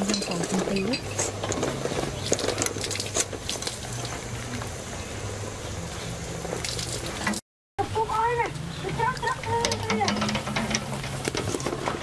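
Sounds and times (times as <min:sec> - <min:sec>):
wire skimmer clinking on pot: 0:00.0 - 0:04.7, 0:08.8 - 0:12.0
water boiling hard: 0:00.0 - 0:12.0.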